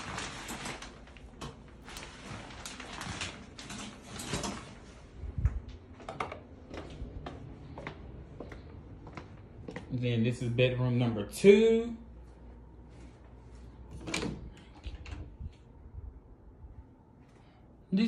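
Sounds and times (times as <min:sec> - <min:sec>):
shower curtain rustling: 0:00.0 - 0:05.5.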